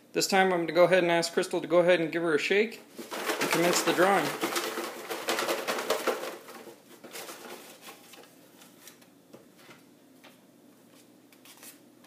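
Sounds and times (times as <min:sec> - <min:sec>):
shaking paper in box: 0:02.9 - 0:08.2
paper slips rustling: 0:02.9 - 0:09.0.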